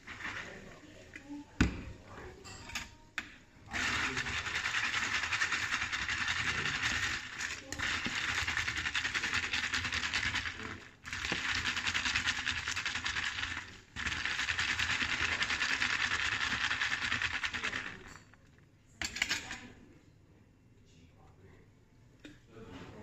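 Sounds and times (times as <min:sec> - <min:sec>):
ice rattling in plastic cup: 0:03.7 - 0:18.3.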